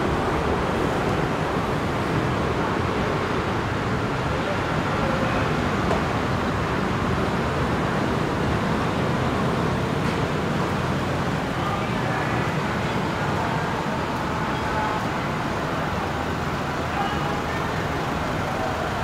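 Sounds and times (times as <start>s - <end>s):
city street traffic: 0.0s - 19.0s
faint voices: 11.2s - 19.0s.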